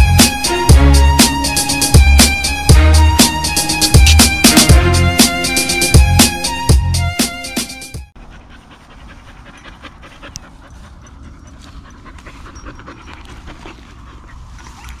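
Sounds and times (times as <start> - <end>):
dog panting: 8.2 - 15.0.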